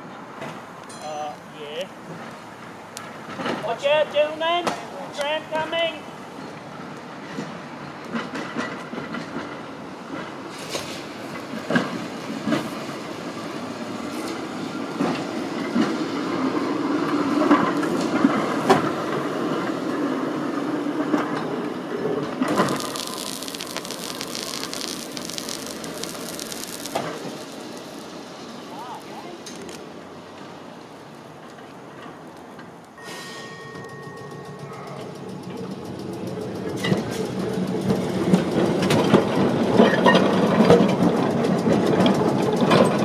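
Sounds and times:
tram rumbling on rails: 0:06.1 - 0:43.0
wheels clicking and knocking: 0:22.2 - 0:33.0, 0:33.8 - 0:43.0
air hissing: 0:22.5 - 0:33.5.

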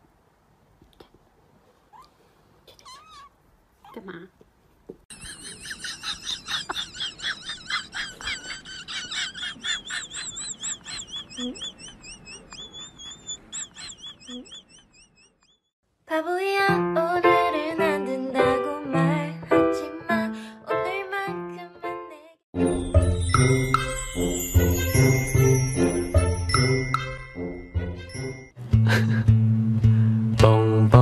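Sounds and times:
high-pitched animal chirping: 0:02.7 - 0:04.0, 0:05.1 - 0:15.7.

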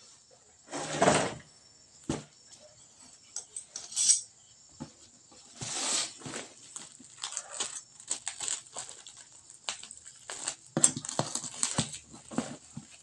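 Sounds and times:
plastic wrapping rustling: 0:05.7 - 0:13.0.

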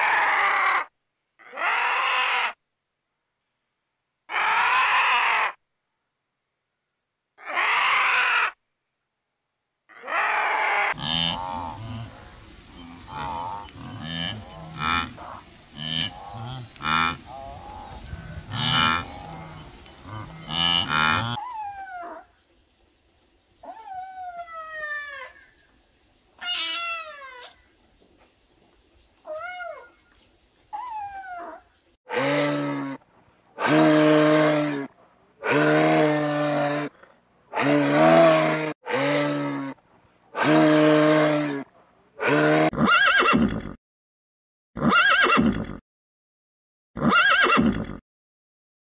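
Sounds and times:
long low animal calls: 0:09.9 - 0:22.3.

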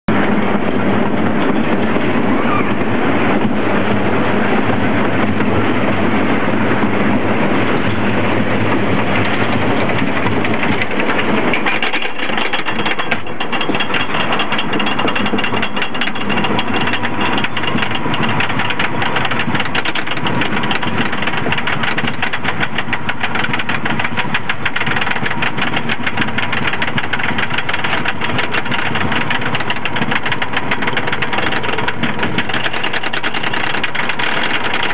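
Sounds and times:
roller coaster rumbling on track: 0:00.1 - 0:34.9
lift chain clacking: 0:09.0 - 0:34.9.

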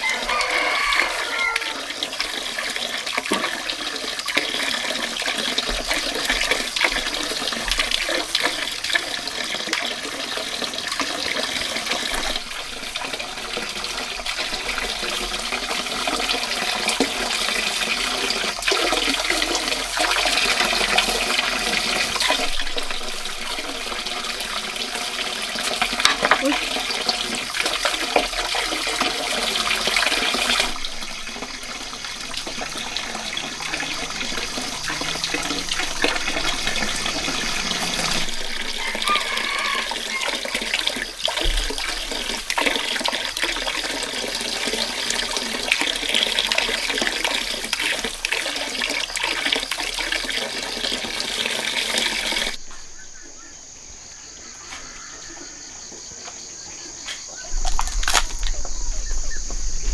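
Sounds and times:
high insect drone: 0:00.0 - 0:59.9
plastic bags crinkling: 0:57.5 - 0:58.7.

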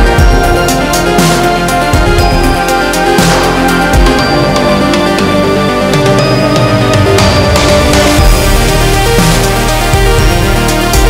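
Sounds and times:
electronic music with heavy bass: 0:00.0 - 0:11.0.

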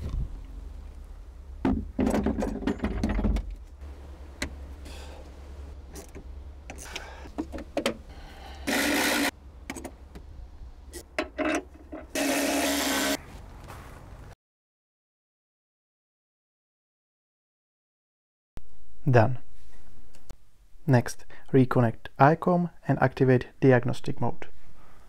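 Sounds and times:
cordless screwdriver running: 0:08.6 - 0:09.3, 0:12.2 - 0:13.2
car battery fittings clattering: 0:11.0 - 0:12.1.

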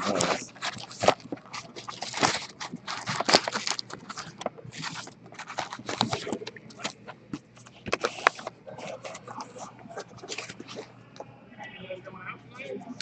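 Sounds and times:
cards and plastic cases rustling: 0:00.0 - 0:10.9.

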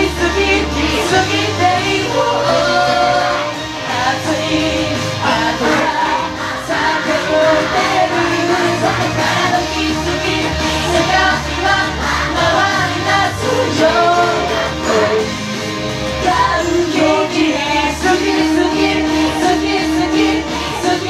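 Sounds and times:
loud pop backing track: 0:00.0 - 0:21.0
male singers singing: 0:00.0 - 0:21.0.

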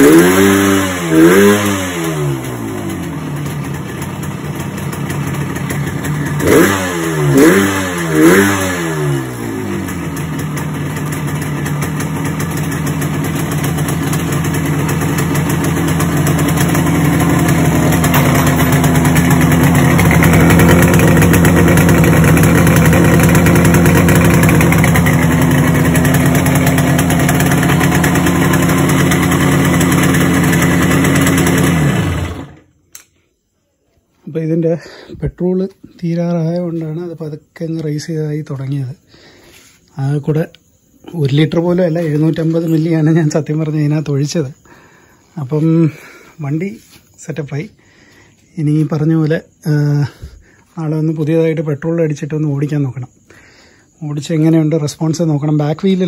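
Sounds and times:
motorcycle engine running: 0:00.0 - 0:32.8.

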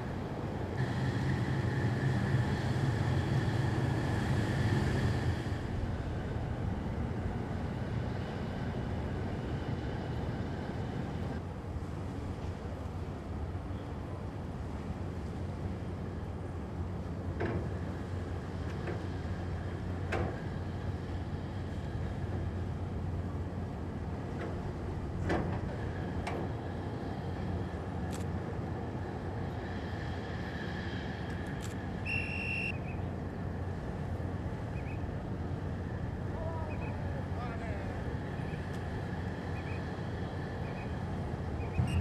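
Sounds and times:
ship engines droning: 0:00.0 - 0:42.0
short high whistle: 0:32.0 - 0:33.0, 0:41.6 - 0:42.0.

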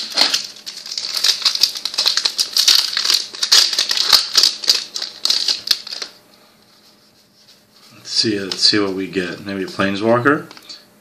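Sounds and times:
wrapper crinkling: 0:00.0 - 0:06.2.

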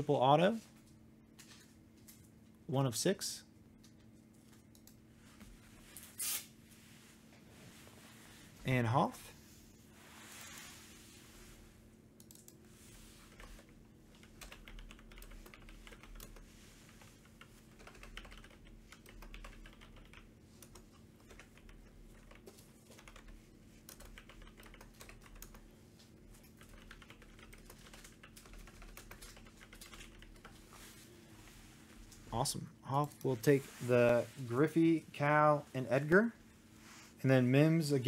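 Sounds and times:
steady low hum: 0:00.0 - 0:38.0
faint computer keyboard typing: 0:03.8 - 0:05.0, 0:12.2 - 0:12.6, 0:13.2 - 0:30.6.

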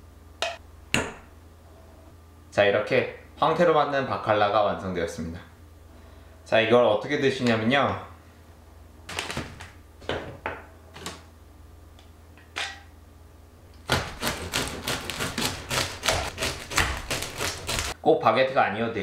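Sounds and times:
knife sawing through crusty bread: 0:13.9 - 0:18.0.

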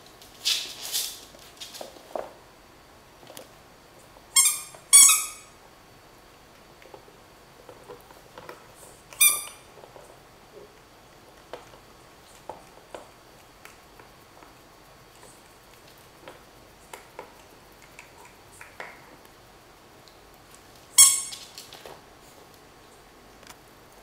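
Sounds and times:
rubber dog toy squeaking: 0:04.4 - 0:05.5, 0:09.2 - 0:09.6, 0:21.0 - 0:21.5.

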